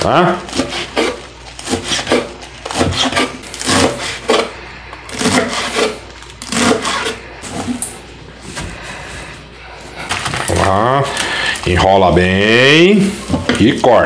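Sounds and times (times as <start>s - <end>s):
knife slicing lettuce: 0.2s - 7.9s.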